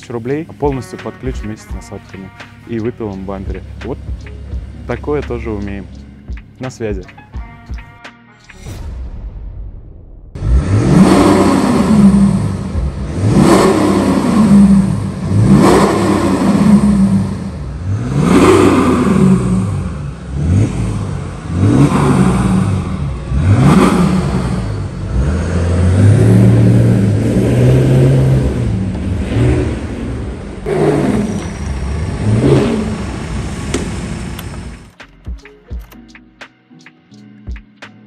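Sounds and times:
diesel engine revving: 2.0 - 6.3, 10.4 - 34.9
car pulling away: 10.4 - 34.9.

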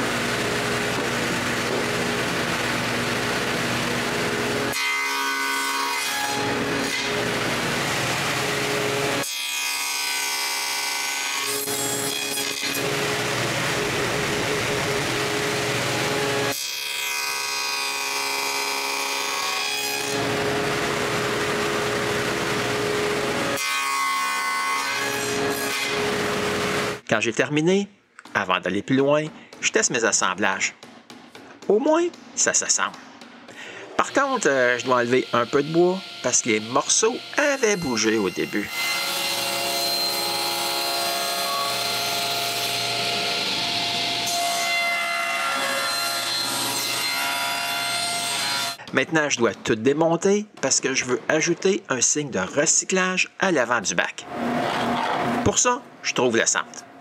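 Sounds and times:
woodworking machine running: 0.0 - 4.8, 12.7 - 16.5, 20.2 - 23.6
table saw cutting wood: 0.0 - 27.0, 31.6 - 48.9, 54.2 - 55.8.

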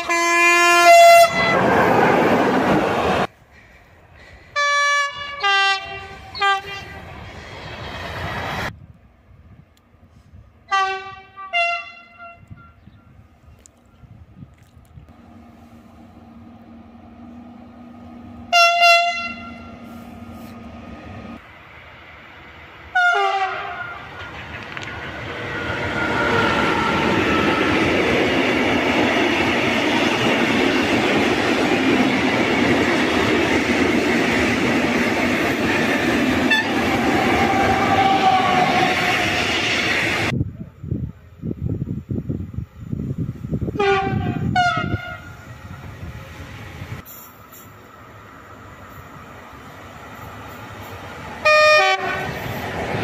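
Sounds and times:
locomotive horn blasts: 0.0 - 1.6, 4.6 - 7.0, 10.7 - 13.0, 18.4 - 20.6, 23.0 - 24.0, 36.5 - 39.4, 43.8 - 45.4, 51.4 - 52.4
freight train wheels rumbling: 15.0 - 53.0.

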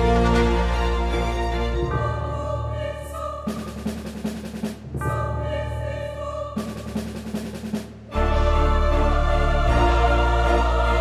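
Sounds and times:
choir chords: 0.0 - 4.2, 5.0 - 7.2, 8.1 - 11.0
rapid drumming: 3.5 - 5.4, 6.6 - 8.2.

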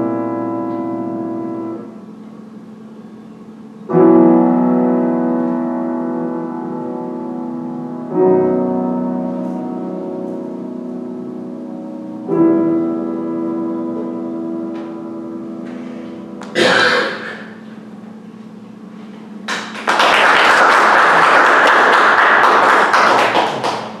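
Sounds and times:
piano chords: 0.0 - 24.0
audience applause: 19.5 - 24.0.

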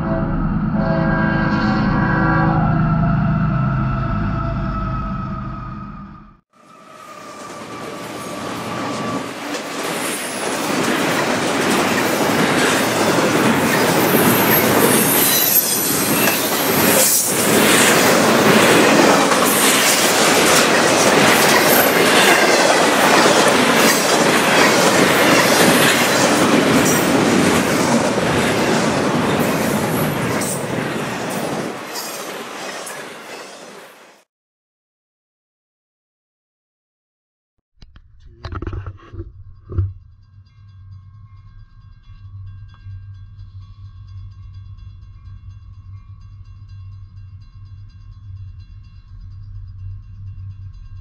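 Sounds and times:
train wheels rumbling and clacking: 7.3 - 33.8
high wheel squeals: 13.7 - 17.4.

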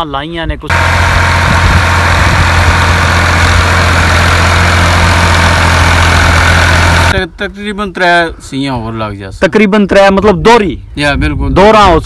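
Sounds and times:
tractor engine running: 0.7 - 7.2.

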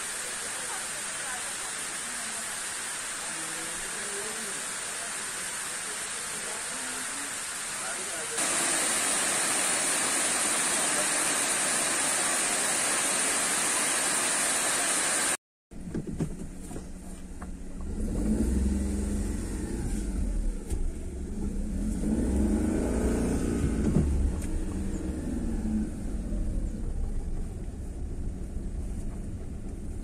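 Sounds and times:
waterfall rushing: 0.2 - 15.4
car engine rumble inside cabin: 16.4 - 30.0.

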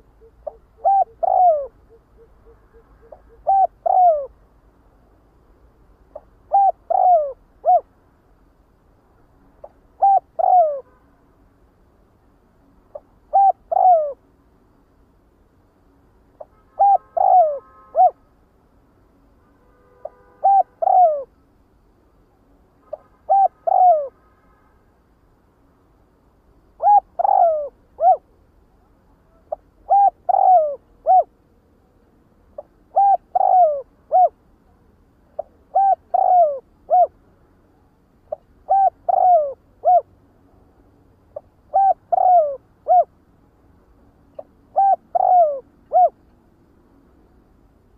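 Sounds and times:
dove cooing: 0.0 - 4.4, 6.1 - 7.9, 9.6 - 10.8, 12.9 - 14.2, 16.8 - 18.2, 20.4 - 21.3, 23.3 - 24.1, 26.8 - 28.3, 29.3 - 31.3, 32.6 - 34.4, 35.4 - 37.2, 38.3 - 40.1, 41.4 - 43.1, 44.4 - 46.2.

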